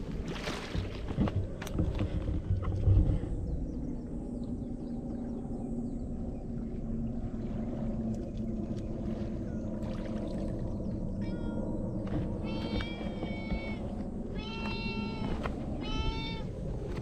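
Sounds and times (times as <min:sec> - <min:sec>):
steady low rumble: 0:00.0 - 0:17.0
cat meowing: 0:12.4 - 0:13.8, 0:14.4 - 0:16.5.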